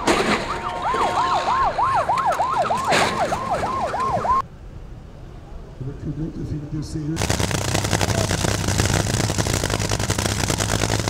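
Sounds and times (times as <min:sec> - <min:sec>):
sirens yelping: 0:00.0 - 0:04.4.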